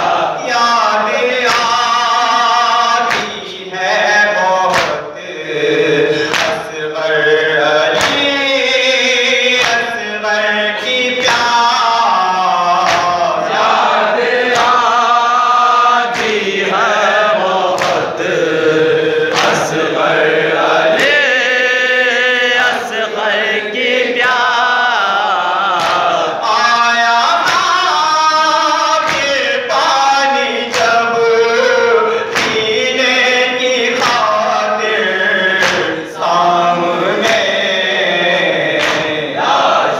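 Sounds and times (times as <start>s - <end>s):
man chanting over microphone: 0.0s - 39.9s
men's voices chanting: 0.0s - 39.9s
chest slaps: 3.1s - 3.4s, 4.7s - 5.0s, 6.2s - 6.6s, 12.8s - 13.2s, 17.8s - 18.1s, 35.6s - 36.0s, 38.7s - 39.2s.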